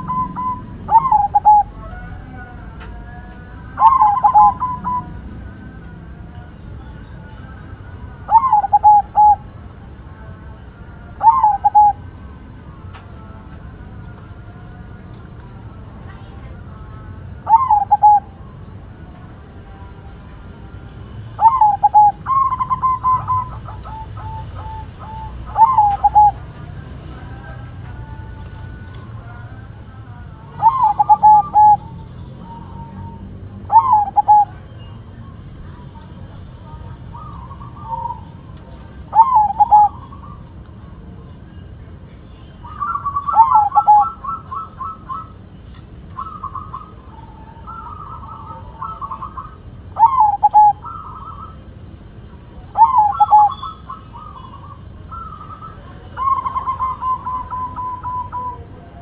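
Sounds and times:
dove cooing: 0.0s - 59.0s.

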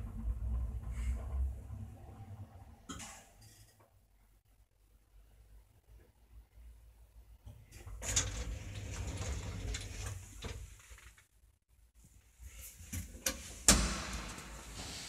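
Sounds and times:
elevator doors sliding open: 7.9s - 10.7s.

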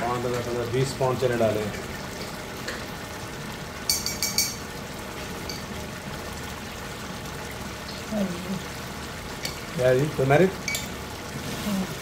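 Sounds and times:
pot bubbling: 0.0s - 12.0s
high clinks: 3.9s - 4.6s.

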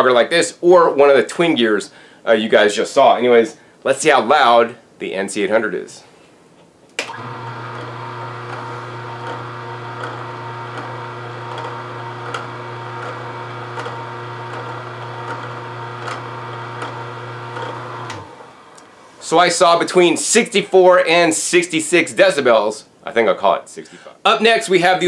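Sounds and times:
juicer motor hum: 7.0s - 18.8s
juicer switch click: 7.0s - 18.8s.

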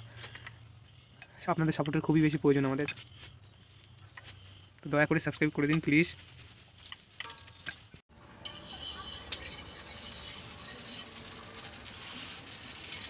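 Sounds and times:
metal utensils clinking: 7.2s - 13.0s.

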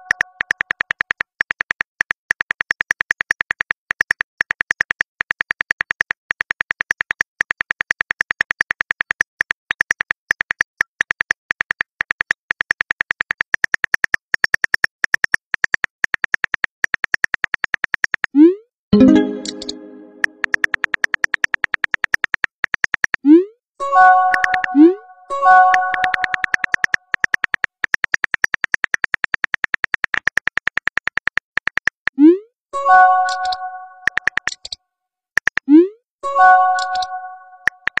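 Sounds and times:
phone keyboard clicks: 25.7s - 32.1s.

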